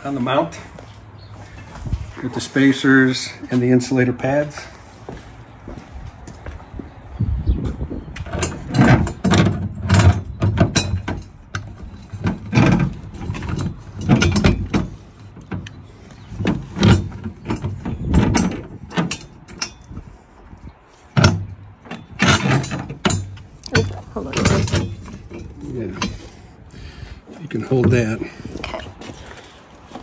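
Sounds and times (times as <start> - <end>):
metal mount clunking and rattling: 8.2 - 26.5.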